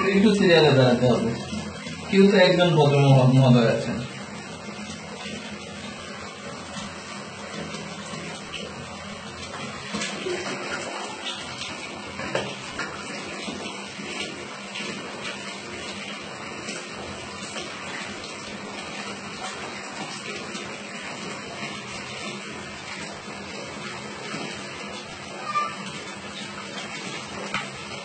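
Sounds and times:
tap water running: 0.0 - 28.0
water splash: 9.4 - 15.7.

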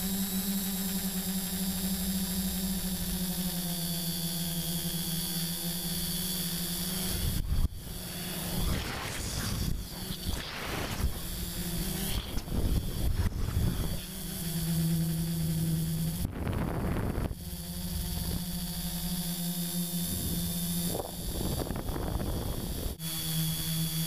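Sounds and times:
drone propellers humming: 0.0 - 24.0
wind noise on microphone: 8.5 - 14.2, 16.1 - 18.5, 20.1 - 23.0.

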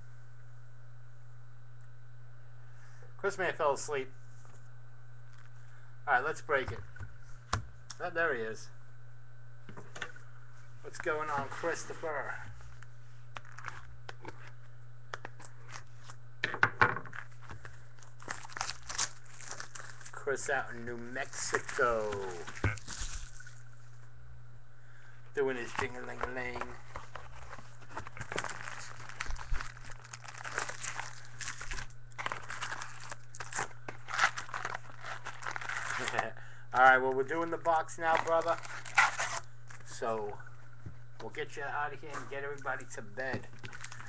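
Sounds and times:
plastic crinkling: 10.8 - 16.2, 17.1 - 20.2, 21.0 - 23.8, 25.4 - 40.0, 42.1 - 44.0
plastic shrink wrap tearing: 13.4 - 14.5, 17.1 - 20.2, 21.2 - 23.6, 25.6 - 36.3, 37.4 - 39.9, 43.5 - 44.0.

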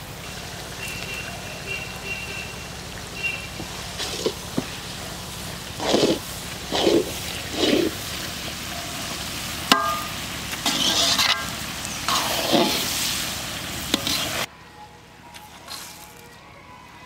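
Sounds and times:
vegetables sizzling in a wok: 0.0 - 14.5
metal spatula scraping wok: 3.9 - 4.6, 5.7 - 14.5
ringing metal clank: 9.7 - 10.2.

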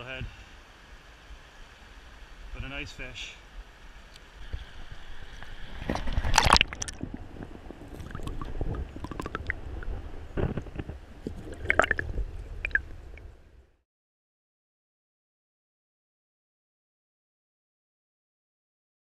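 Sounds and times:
water splashing: 4.4 - 13.4
muffled underwater sloshing: 4.4 - 13.6.

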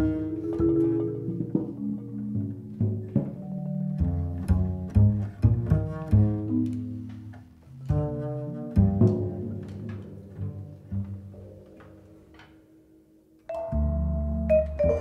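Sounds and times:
plucked double bass: 0.0 - 15.0.

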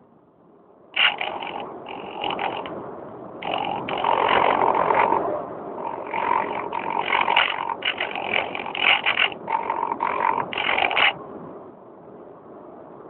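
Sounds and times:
wind rushing over microphone: 0.0 - 13.0
model plane motor and propeller: 1.0 - 2.7, 3.4 - 5.2, 5.8 - 11.2.

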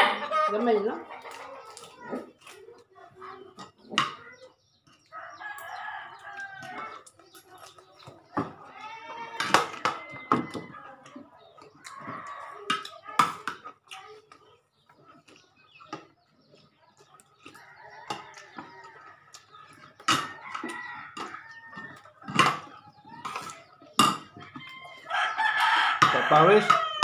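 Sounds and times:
chickens clucking: 0.0 - 27.0
rooster crowing: 24.6 - 27.0.

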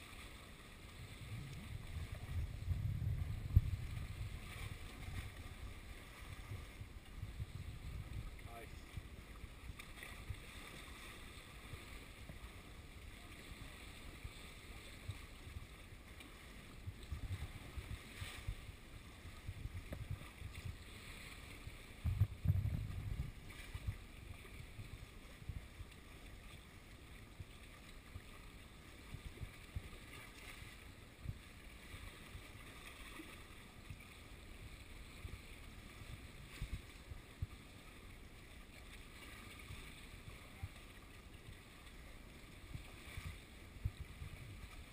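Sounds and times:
sea lapping against rocks: 0.0 - 44.9
wind buffeting microphone: 1.0 - 9.2, 21.9 - 25.8.

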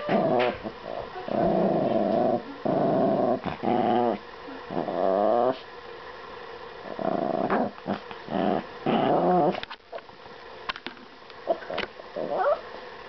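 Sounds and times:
small dog growling: 0.0 - 5.7, 6.8 - 9.6, 11.5 - 12.6.

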